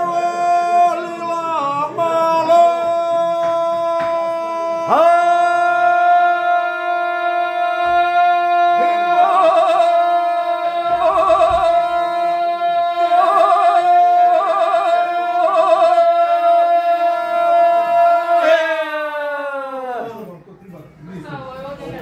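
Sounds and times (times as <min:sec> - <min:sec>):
group singing unaccompanied: 0:00.0 - 0:18.6
voice warbling: 0:08.8 - 0:13.9.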